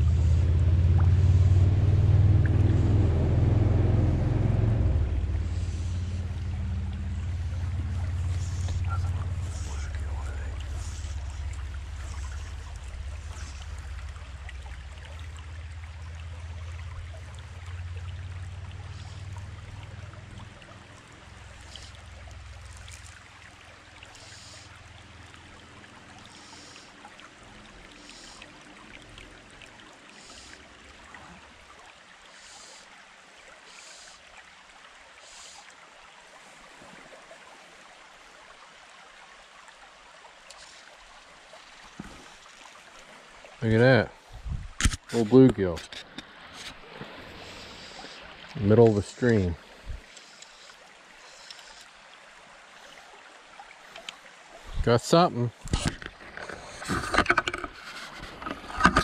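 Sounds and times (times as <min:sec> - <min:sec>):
low rumble: 0:00.0 - 0:21.0, 0:43.7 - 0:44.8
stream running over rocks: 0:00.0 - 0:59.0.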